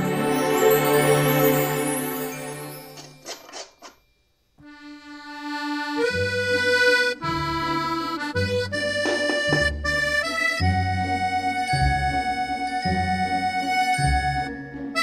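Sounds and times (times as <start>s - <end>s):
background music with held chords: 0.0s - 3.2s, 4.7s - 15.0s.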